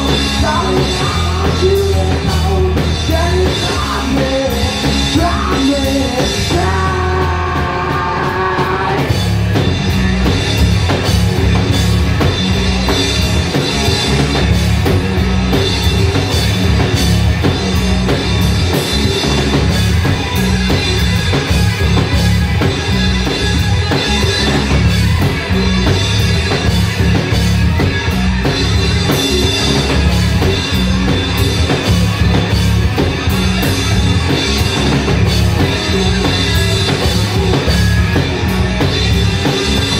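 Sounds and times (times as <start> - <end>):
person singing: 0.0 - 9.2
live rock band playing: 0.0 - 39.9.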